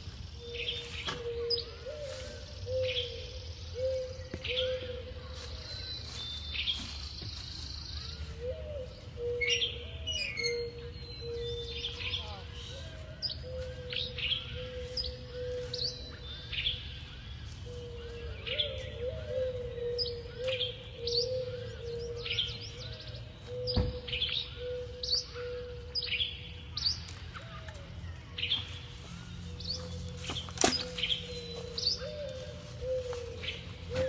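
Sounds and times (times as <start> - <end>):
birds chirping: 0.0 - 34.0
thump: 23.7 - 24.0.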